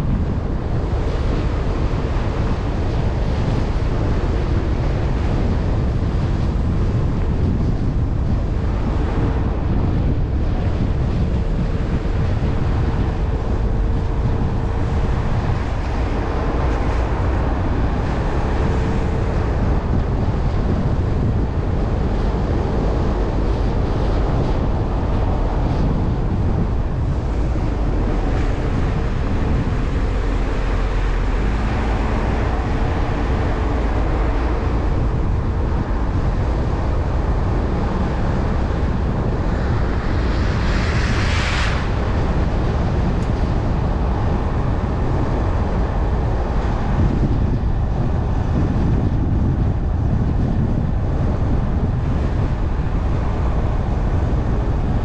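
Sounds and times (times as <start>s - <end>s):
car engine and tyre noise: 0.0s - 55.0s
wind buffeting microphone: 0.0s - 55.0s.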